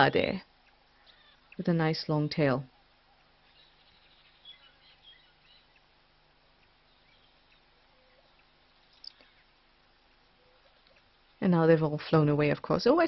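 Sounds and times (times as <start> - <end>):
faint high bird chirps: 0.2 - 2.0, 2.6 - 5.9, 6.5 - 9.6, 10.3 - 11.4.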